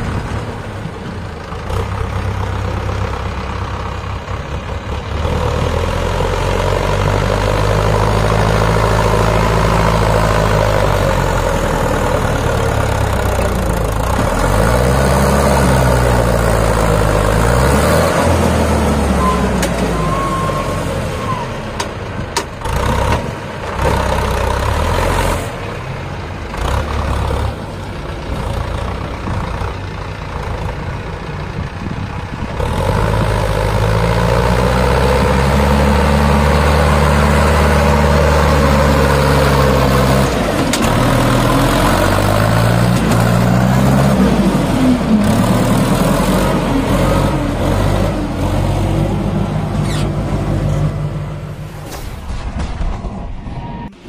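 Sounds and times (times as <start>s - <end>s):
tractor diesel engine: 0.0s - 54.0s.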